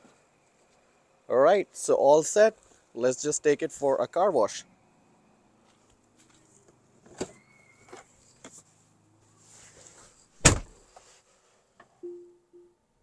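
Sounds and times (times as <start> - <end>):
rustling in car seat: 8.0 - 11.7
car door thud: 10.4 - 10.8.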